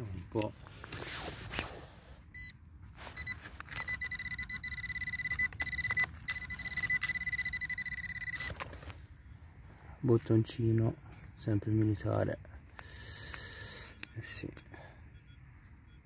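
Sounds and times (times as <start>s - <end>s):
scrapes and clicks of soil and stones: 0.0s - 2.0s
metal detector beeping: 2.4s - 8.7s, 13.6s - 16.0s.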